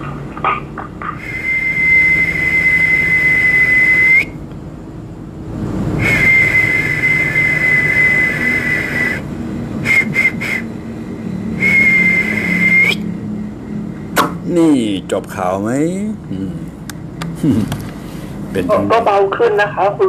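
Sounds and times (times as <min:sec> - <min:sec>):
high steady whistle: 0:01.2 - 0:04.4, 0:05.9 - 0:13.9
quick short toots: 0:09.8 - 0:10.7.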